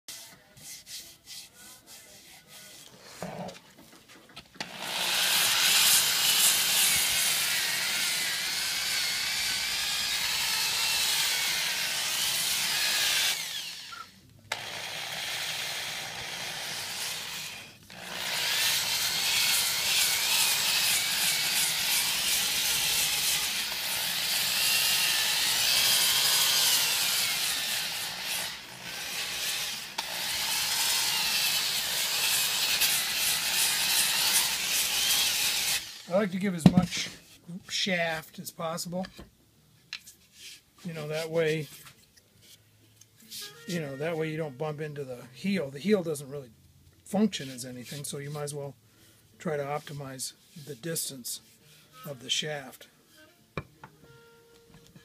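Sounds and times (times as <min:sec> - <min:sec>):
power sanding drum on wood: 0:04.6 - 0:13.9, 0:14.5 - 0:37.1.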